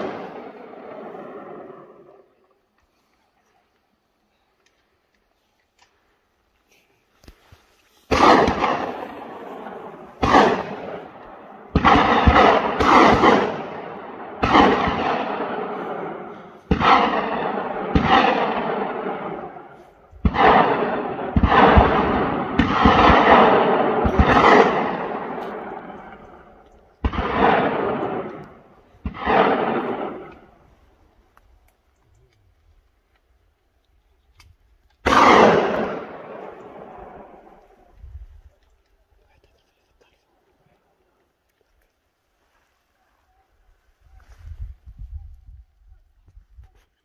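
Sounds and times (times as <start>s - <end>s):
gunshots with long echo: 0.0s - 2.4s, 8.1s - 31.2s, 35.0s - 38.2s.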